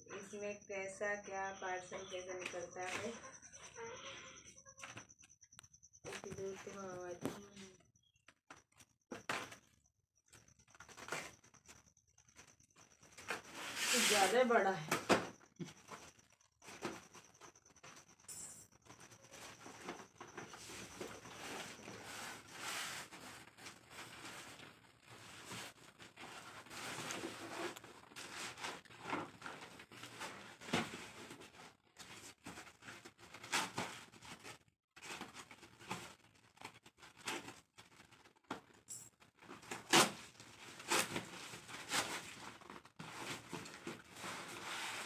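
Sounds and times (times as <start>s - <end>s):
cardboard rustling and tearing: 21.4s - 38.7s, 39.4s - 45.0s.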